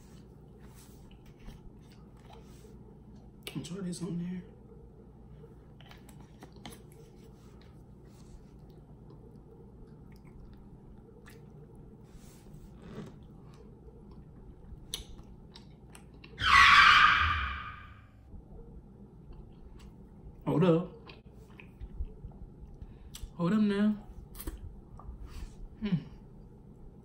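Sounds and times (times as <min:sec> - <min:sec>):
quiet chewing: 0:00.1 - 0:03.6, 0:05.2 - 0:16.4, 0:19.2 - 0:23.4.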